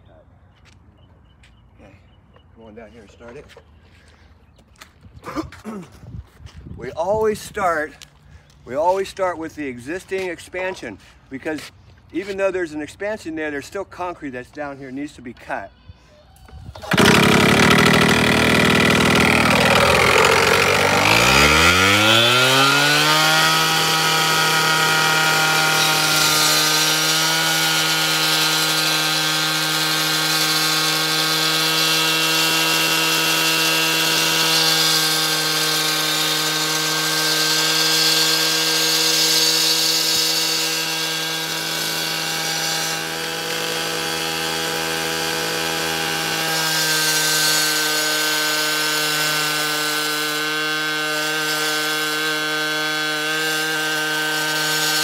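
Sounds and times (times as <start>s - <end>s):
concrete saw engine revving: 16.8s - 55.0s
saw cutting concrete hiss: 16.8s - 55.0s.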